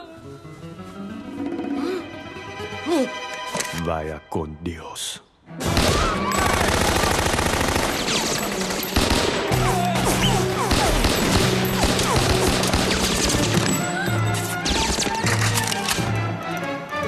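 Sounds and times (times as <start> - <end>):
handguns firing rapidly: 5.8 - 13.5.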